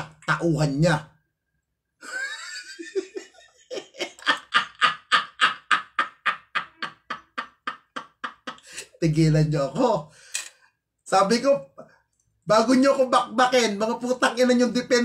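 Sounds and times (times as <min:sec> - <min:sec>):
man laughing hard: 0:02.0 - 0:09.0.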